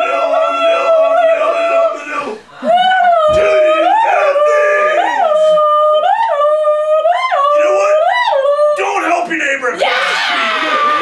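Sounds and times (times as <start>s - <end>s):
person howling into a microphone: 9.8s - 11.0s.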